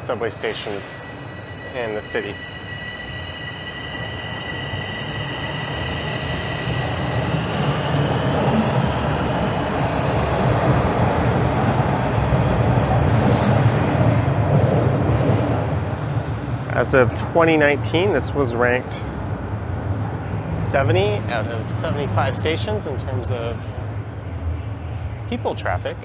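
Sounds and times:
high steady whine: 0:00.0 - 0:10.0
subway train rumble: 0:00.0 - 0:26.0.

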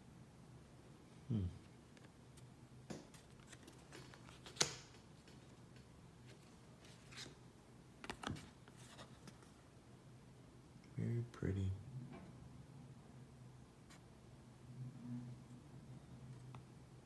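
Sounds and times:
cards clicking and rustling: 0:03.0 - 0:07.4, 0:08.0 - 0:09.4.

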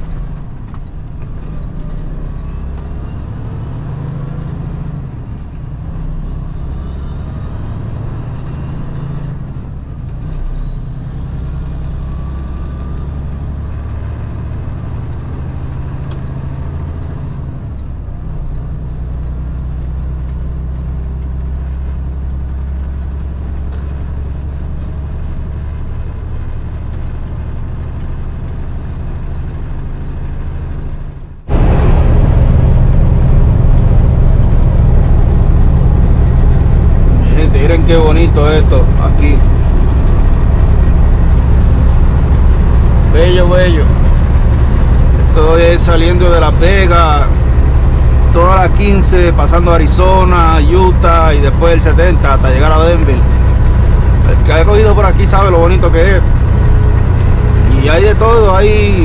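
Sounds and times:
diesel truck engine drone: 0:00.0 - 0:59.0
road noise: 0:00.0 - 0:59.0.

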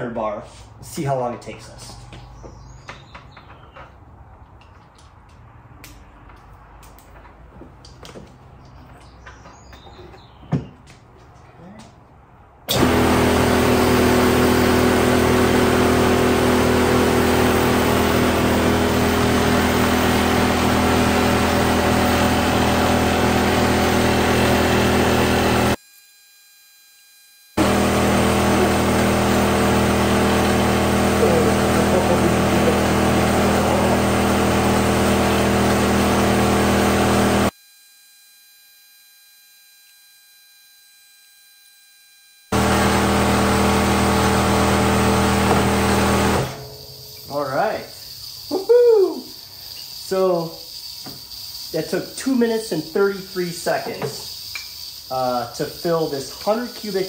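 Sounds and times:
air compressor running: 0:12.7 - 0:25.8, 0:27.5 - 0:57.0.

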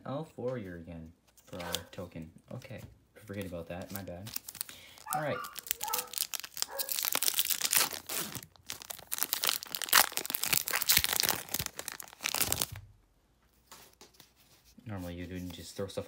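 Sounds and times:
foil wrapper tearing and crinkling: 0:03.8 - 0:12.8.

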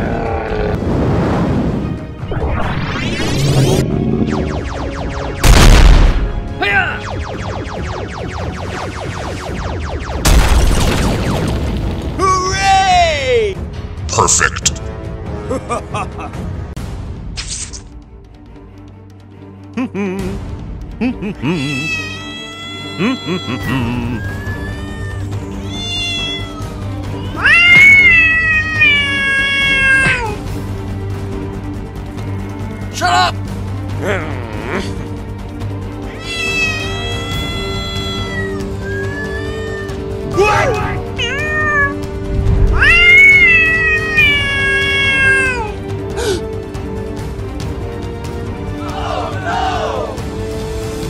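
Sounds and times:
background music: 0:00.0 - 0:51.0
cat meowing: 0:21.6 - 0:30.4, 0:36.1 - 0:42.0, 0:42.7 - 0:45.8.

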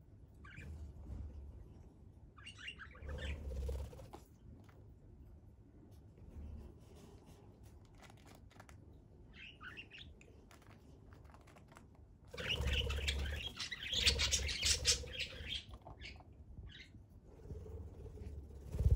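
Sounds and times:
budgerigar chirping: 0:12.4 - 0:16.9.

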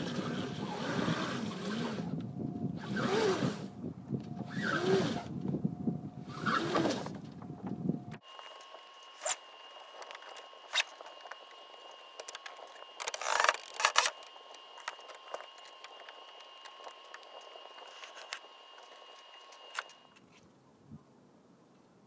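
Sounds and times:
rope clicking and rasping through fittings: 0:08.4 - 0:20.4.

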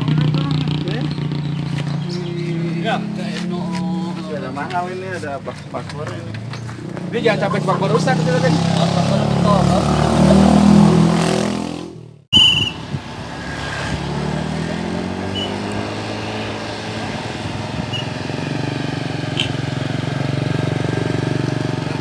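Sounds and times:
vehicle engine running: 0:00.0 - 0:09.8, 0:14.1 - 0:22.0
vehicle approaching on road: 0:00.0 - 0:22.0
high chirp: 0:01.0 - 0:03.2.

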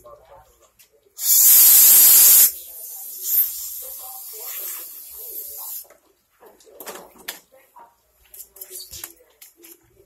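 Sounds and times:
hissing spray blast: 0:01.2 - 0:05.8
faint steady spray hiss: 0:01.2 - 0:05.9.

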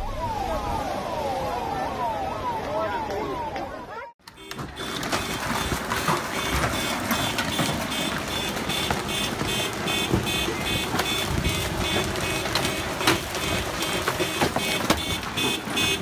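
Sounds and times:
car alarm beeping: 0:04.2 - 0:16.0
hailstones striking: 0:04.3 - 0:16.0.

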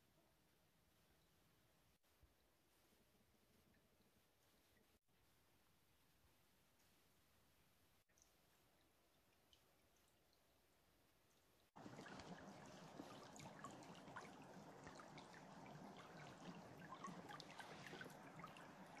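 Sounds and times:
small splashes and trickles: 0:08.1 - 0:19.0
stream water rushing over stones: 0:11.8 - 0:19.0.

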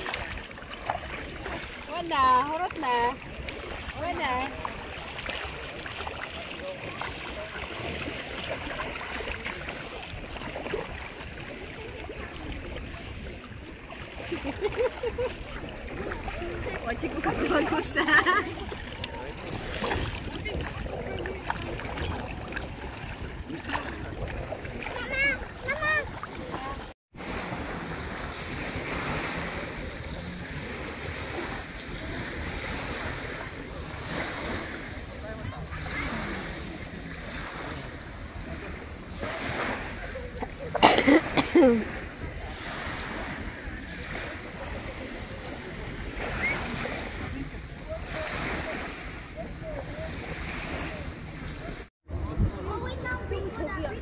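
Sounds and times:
seawater sloshing and splashing: 0:00.0 - 0:51.9
small waves lapping on shore: 0:00.0 - 0:54.0
wind rumble on microphone: 0:49.5 - 0:54.0.

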